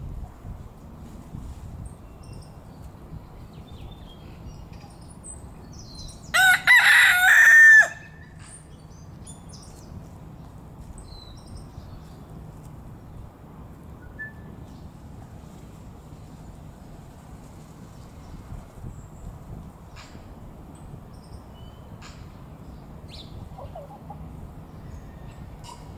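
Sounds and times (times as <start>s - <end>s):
rooster crowing: 6.3s - 8.3s.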